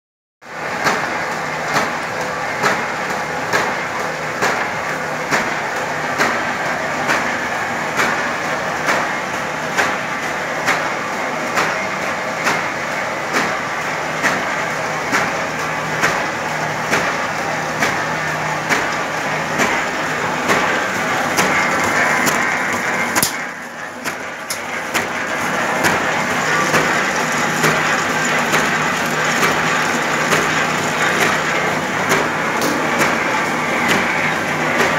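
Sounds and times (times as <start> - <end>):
paper cutting machine hum: 0.4 - 34.9
cutter knocking: 20.5 - 25.2.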